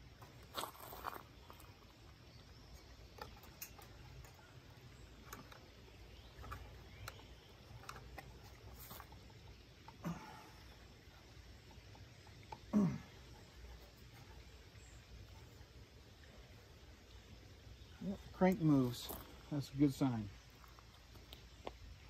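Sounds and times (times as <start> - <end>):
metal clicks and taps of hand tools: 3.1 - 4.5.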